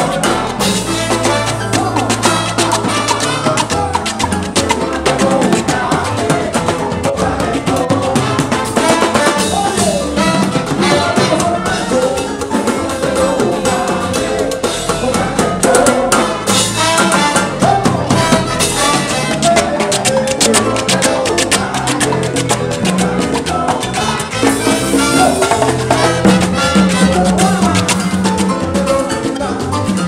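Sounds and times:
trumpet: 0.0s - 4.2s, 8.1s - 12.4s, 15.1s - 21.8s, 23.5s - 30.0s
bass guitar: 0.0s - 30.0s
congas: 0.0s - 30.0s
drum kit: 0.0s - 30.0s
saxophone: 8.0s - 14.6s, 15.2s - 21.9s, 22.8s - 29.9s.

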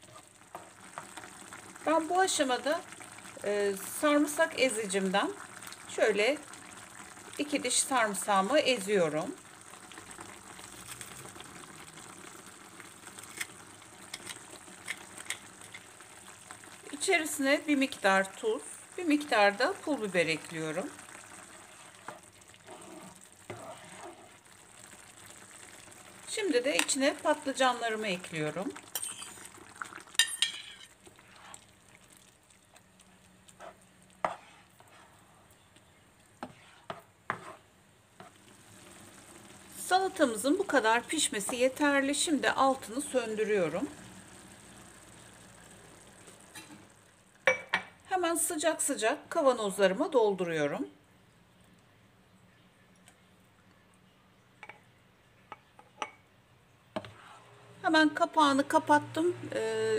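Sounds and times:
sauce bubbling in a pan: 0.0s - 50.1s
spoon stirring thick mixture: 19.2s - 24.4s, 28.4s - 38.5s, 40.0s - 42.9s, 57.0s - 57.5s
spoon scraping and knocking pan: 30.2s - 31.6s, 33.6s - 35.1s, 36.4s - 37.6s.

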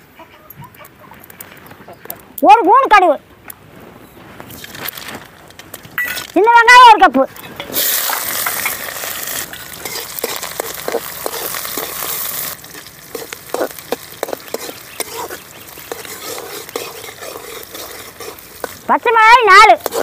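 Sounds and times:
shallots sizzling in hot oil: 7.3s - 20.0s
metal spatula scraping a pan: 7.4s - 18.9s, 19.7s - 20.0s.

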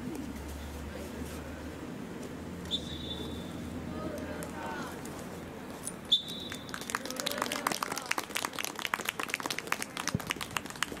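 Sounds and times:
hand clapping: 6.5s - 11.0s.

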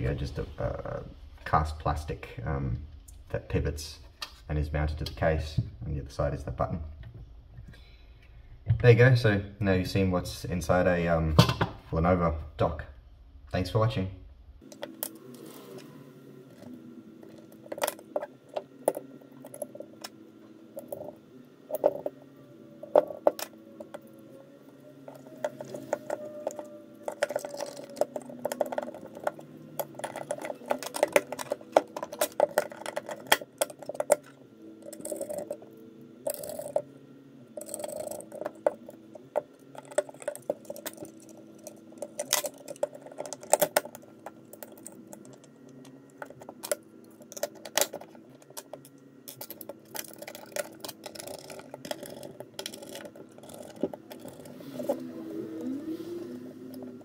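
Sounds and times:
soft background music: 13.5s - 57.0s.

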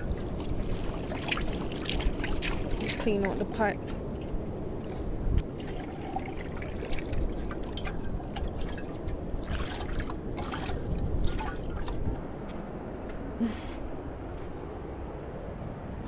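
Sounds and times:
water splashing and pouring: 0.0s - 12.2s.

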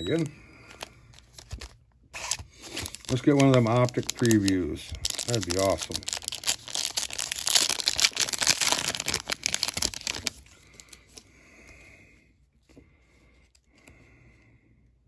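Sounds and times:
foil wrapper tearing and crinkling: 0.1s - 11.2s.

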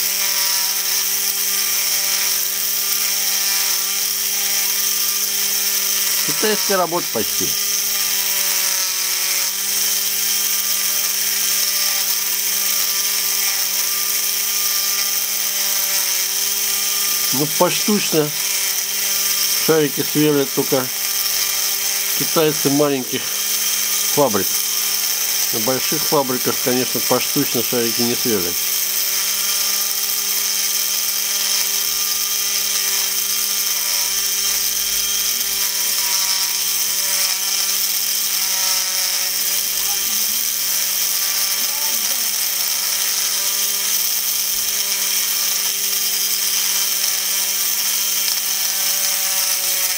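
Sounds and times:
electric drill grinding: 0.0s - 49.9s.

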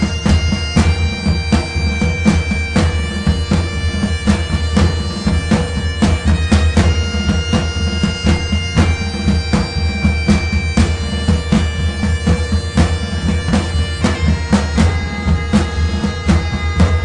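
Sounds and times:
steady drum beat: 0.0s - 17.0s.

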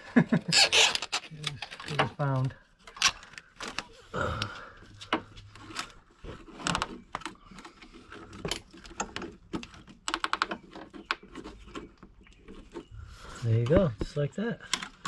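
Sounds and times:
zip tie clicking: 0.5s - 1.6s.

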